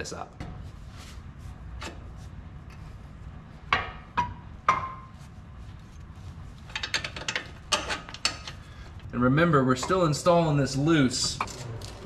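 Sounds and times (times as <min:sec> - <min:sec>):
low steady hum: 0:00.0 - 0:12.0
metal clanks: 0:06.7 - 0:08.6.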